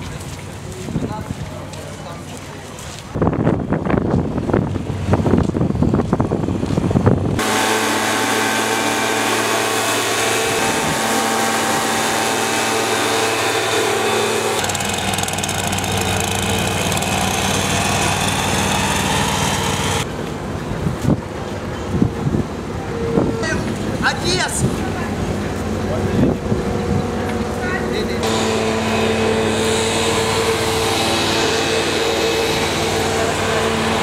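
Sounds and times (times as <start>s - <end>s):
street noise: 0.0s - 34.0s
leaf blower engine running: 7.4s - 20.1s, 28.0s - 34.0s.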